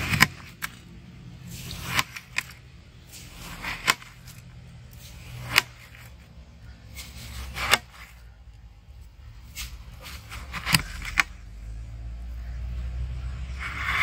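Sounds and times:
knife slicing through watermelon: 1.5s - 6.2s, 6.9s - 8.2s.

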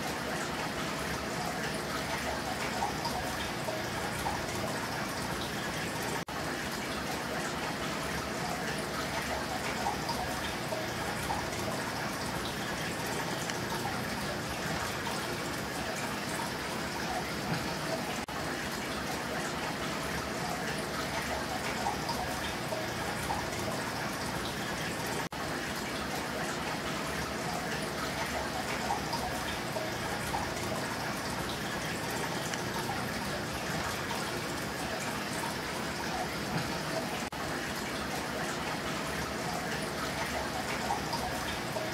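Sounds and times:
water splashing in an aquarium: 0.0s - 41.9s.

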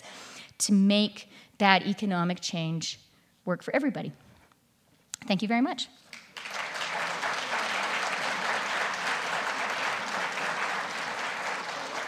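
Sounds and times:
audience applauding: 6.1s - 12.0s.

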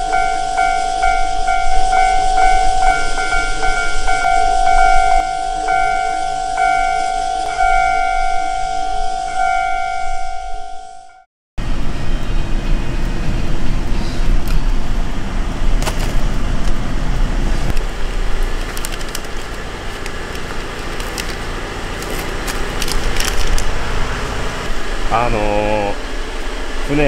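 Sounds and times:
truck engine running: 0.0s - 10.2s, 11.6s - 27.0s
plastic bags crackling: 17.7s - 24.3s.

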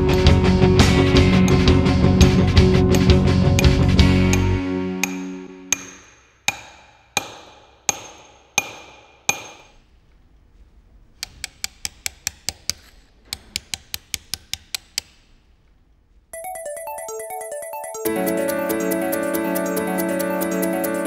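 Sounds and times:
hammer striking steel chisel: 4.3s - 9.8s, 11.2s - 15.2s.

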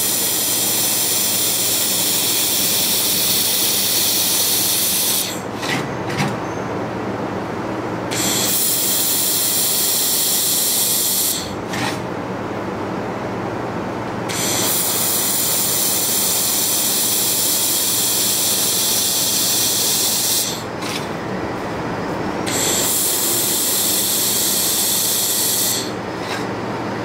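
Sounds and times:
laser welding gun hissing: 0.0s - 5.4s, 8.1s - 11.6s, 14.3s - 20.7s, 22.5s - 26.0s.

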